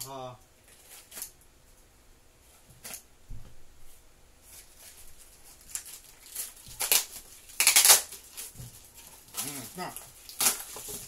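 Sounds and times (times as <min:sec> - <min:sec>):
cardboard ripping: 0:04.5 - 0:11.0.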